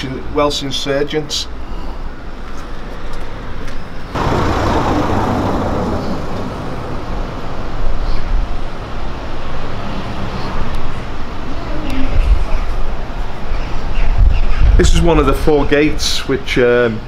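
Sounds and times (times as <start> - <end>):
low traffic rumble: 2.2 - 15.9
motor vehicle passing: 4.2 - 10.1.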